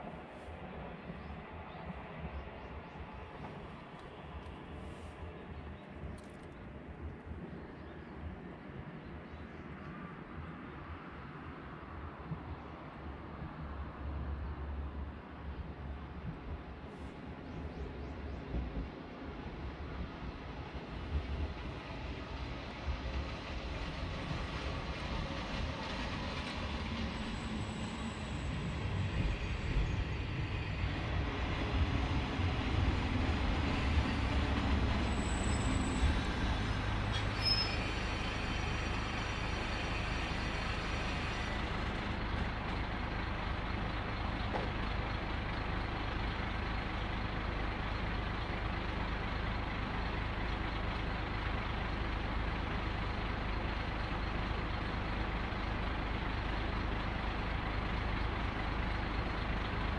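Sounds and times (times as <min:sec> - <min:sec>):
diesel railcar rumbling: 0:00.0 - 0:59.9
high brake squeal: 0:27.1 - 0:30.2, 0:35.0 - 0:41.9
diesel engine idling: 0:40.5 - 0:59.9.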